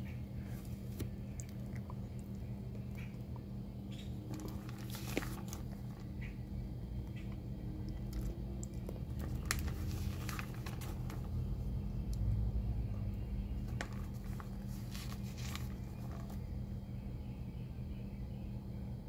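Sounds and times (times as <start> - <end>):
low steady hum: 0.0 - 19.0
paper pages rustling: 4.3 - 6.1, 8.0 - 11.6, 13.6 - 16.5.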